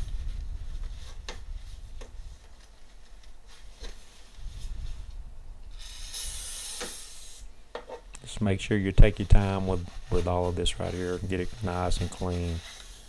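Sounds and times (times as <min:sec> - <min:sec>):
paper towel wiping metal: 0:08.3 - 0:13.0.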